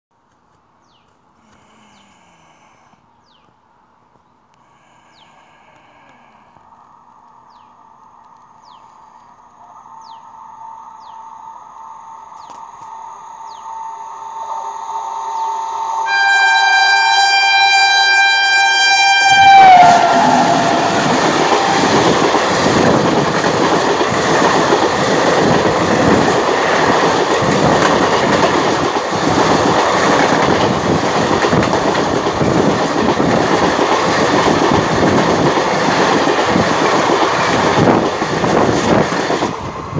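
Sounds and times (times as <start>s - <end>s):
train coaches rumbling past: 4.6s - 39.9s
locomotive two-note horn: 15.9s - 22.0s.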